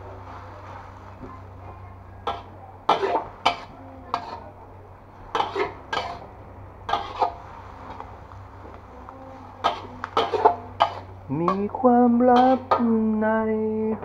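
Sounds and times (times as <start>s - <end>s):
steady low hum: 0.0s - 14.0s
metal spatula scraping wok: 2.2s - 4.5s, 5.3s - 6.3s, 6.9s - 7.8s, 9.6s - 11.2s.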